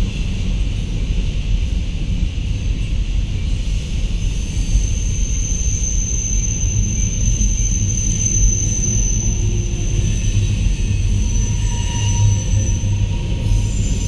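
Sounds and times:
freight cars rumbling over rails: 0.1s - 14.0s
high-pitched whine: 3.3s - 14.0s.

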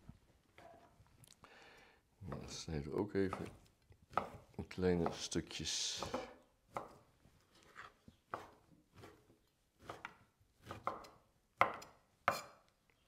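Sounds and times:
knife chopping on wooden board: 3.3s - 5.4s, 6.0s - 7.1s, 7.7s - 12.6s.

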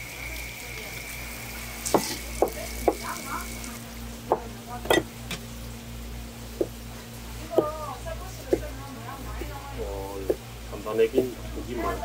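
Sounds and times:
knife knocking on cutting board: 1.9s - 3.0s, 4.3s - 5.4s, 6.6s - 6.8s, 7.5s - 7.8s.

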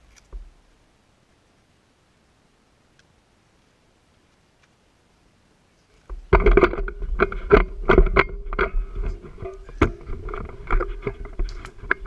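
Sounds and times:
knocks and bumps on wood: 6.1s - 12.0s.

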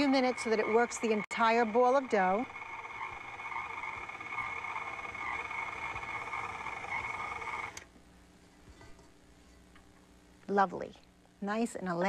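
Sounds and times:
stand mixer whining: 0.0s - 7.8s.

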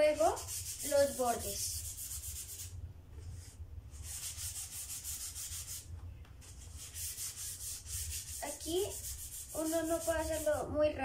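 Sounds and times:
sandpaper rubbing on wood: 0.0s - 2.7s, 4.0s - 5.9s, 6.5s - 10.6s.

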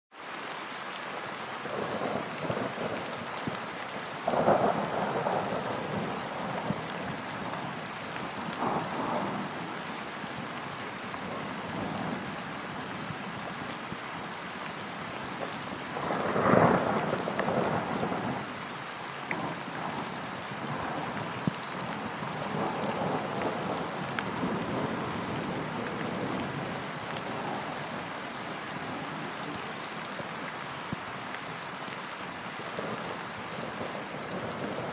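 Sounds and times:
steady rain: 0.1s - 34.9s
thunder rumbling: 4.2s - 7.6s, 8.4s - 9.7s, 15.4s - 18.5s, 19.3s - 28.0s, 32.8s - 34.9s.

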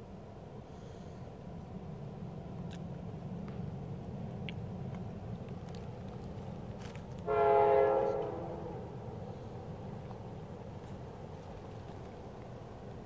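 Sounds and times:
freight train rumbling: 0.0s - 13.0s
locomotive air horn: 7.2s - 8.9s.

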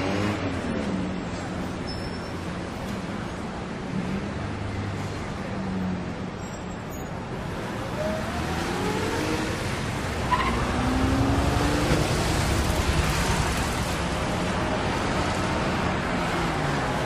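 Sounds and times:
rumble of passing cars: 0.0s - 17.0s
vehicle engine accelerating: 7.6s - 14.1s.

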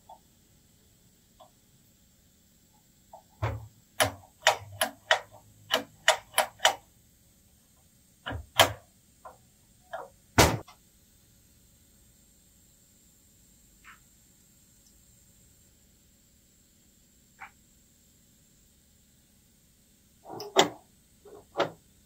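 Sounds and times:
steel parts clicking and knocking: 3.2s - 6.8s.

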